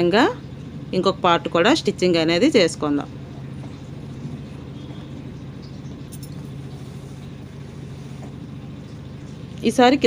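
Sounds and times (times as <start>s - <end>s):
motor humming: 3.1s - 9.7s.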